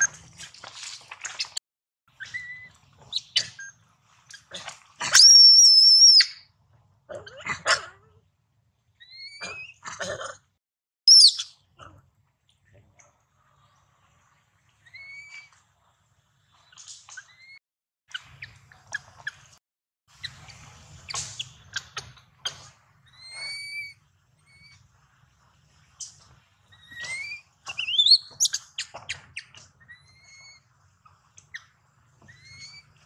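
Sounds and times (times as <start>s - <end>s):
infant monkey high squeaks: 2.2s - 3.8s, 5.0s - 6.4s, 9.0s - 9.8s, 11.1s - 11.5s, 14.9s - 15.5s, 17.1s - 17.6s, 23.1s - 24.8s, 26.7s - 30.7s, 32.3s - 33.0s.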